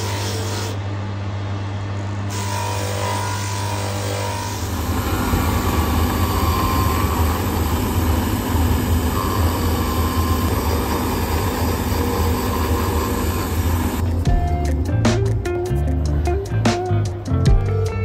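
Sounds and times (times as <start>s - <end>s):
cutter grinding leather: 2.3s - 14.0s
machine motor running: 2.3s - 14.2s.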